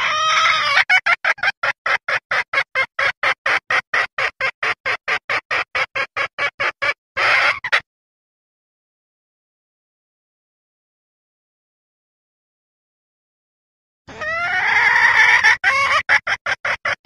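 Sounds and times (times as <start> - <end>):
hen clucking: 0.0 - 7.8, 14.1 - 17.0.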